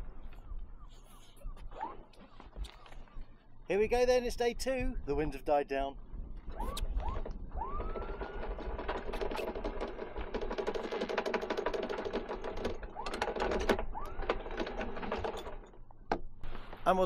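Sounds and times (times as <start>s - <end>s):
windlass motor whining: 6.0s - 16.9s.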